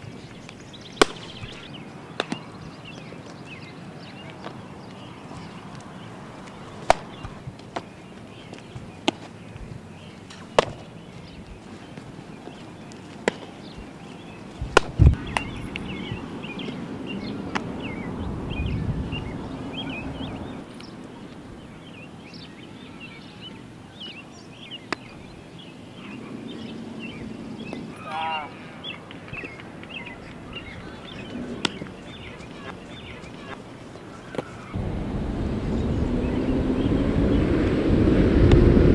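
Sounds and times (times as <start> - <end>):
small birds chirping: 0.0 - 37.8
baseball bat and glove pops: 0.4 - 3.1, 6.5 - 7.9, 8.5 - 9.7, 10.3 - 11.0, 13.1 - 13.6, 14.6 - 15.9, 24.9 - 25.1, 31.5 - 32.0.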